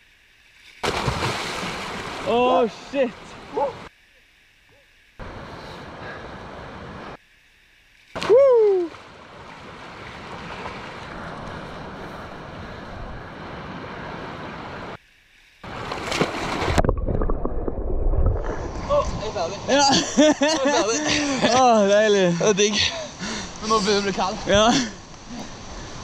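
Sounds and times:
rushing river water: 0.1s - 7.2s, 8.0s - 15.0s, 15.6s - 17.1s.

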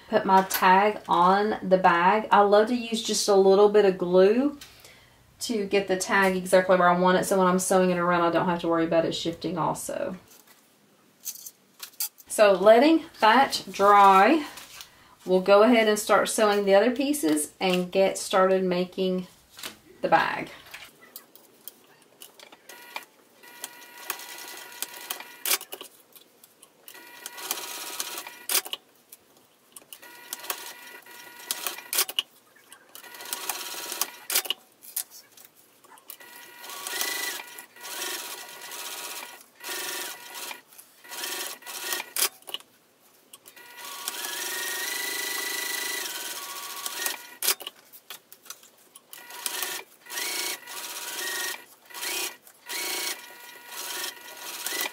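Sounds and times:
sewing machine stitching: 26.9s - 28.8s, 33.0s - 34.5s, 36.2s - 42.4s, 43.6s - 47.7s, 49.2s - 54.9s
clicks and handling sounds: 34.4s - 36.2s.

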